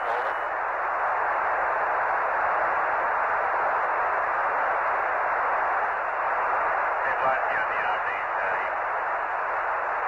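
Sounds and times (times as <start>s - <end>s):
radio static hiss: 0.0s - 0.5s.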